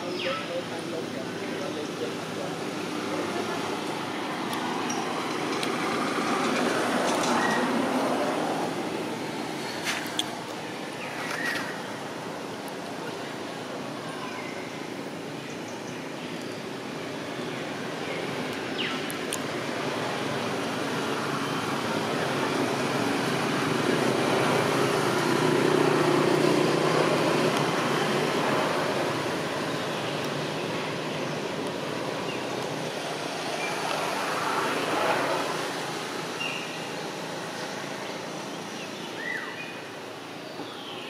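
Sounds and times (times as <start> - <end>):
traffic rushing: 0.0 - 41.0
vehicle passing: 1.0 - 12.2, 19.4 - 38.7.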